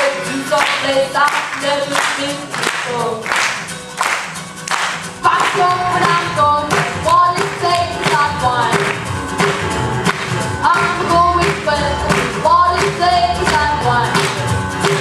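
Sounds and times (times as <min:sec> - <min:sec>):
person singing: 0:00.0 - 0:03.4, 0:05.2 - 0:09.0, 0:10.6 - 0:15.0
rhythmic handclaps: 0:00.0 - 0:15.0
jazz tune with vocals: 0:05.2 - 0:15.0.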